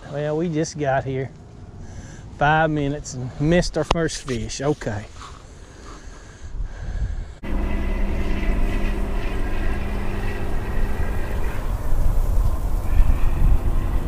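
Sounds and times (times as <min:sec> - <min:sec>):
wind rumbling on microphone: 0:06.4 - 0:14.0
distant engine hum: 0:07.4 - 0:14.0.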